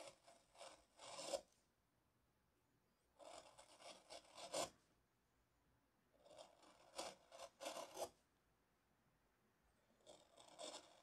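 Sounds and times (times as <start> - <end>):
carving gouge scraping wood: 0.0 - 1.6, 3.2 - 4.8, 6.2 - 8.2, 10.0 - 11.0.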